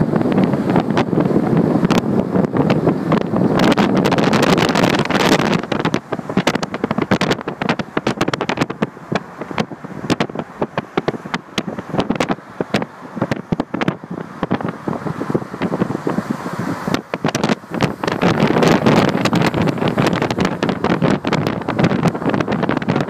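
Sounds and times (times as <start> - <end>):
road noise: 0.0 - 23.0
wind rushing over microphone: 0.0 - 23.0
rapid crackling pops: 1.8 - 23.0.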